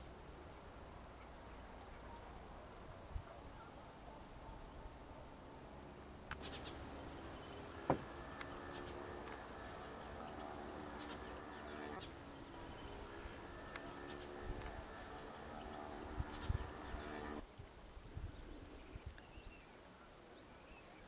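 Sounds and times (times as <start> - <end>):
insects buzzing: 6.3 - 17.4.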